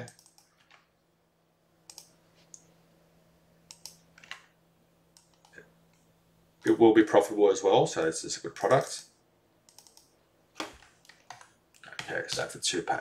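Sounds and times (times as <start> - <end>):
keyboard and mouse clicks: 0.0 - 0.9, 1.9 - 2.7, 3.7 - 4.5, 5.2 - 6.8, 9.7 - 12.5
faint steady hum: 0.0 - 13.0.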